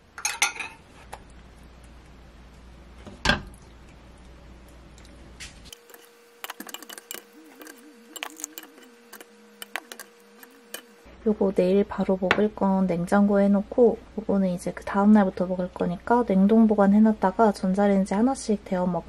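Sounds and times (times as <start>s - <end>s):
steady hum: 0.0s - 19.0s
ladle clinking on containers: 5.7s - 10.9s.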